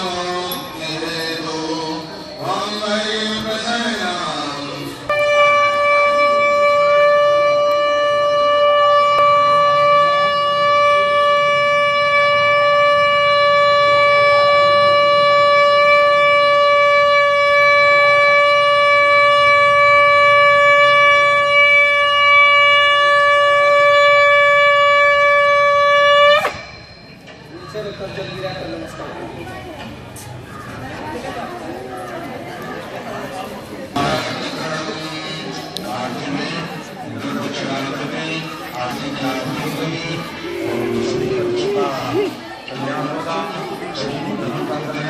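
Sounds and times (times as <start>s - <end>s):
conch shell blown: 5.1s - 27.0s, 40.2s - 42.1s.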